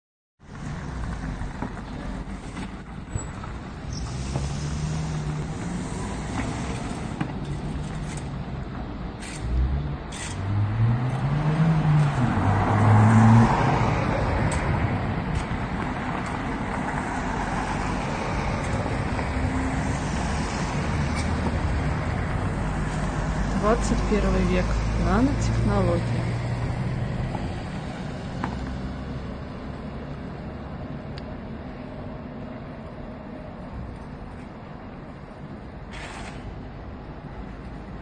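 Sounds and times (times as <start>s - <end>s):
traffic engine rumble: 0.4s - 38.0s
car passing close by: 3.8s - 7.4s, 9.5s - 30.0s.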